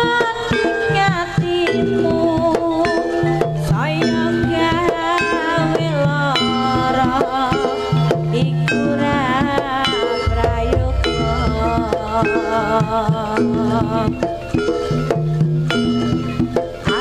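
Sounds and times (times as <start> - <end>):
gamelan music: 1.6 - 17.0
hand drumming: 8.1 - 14.5
deep low note: 10.2 - 12.7.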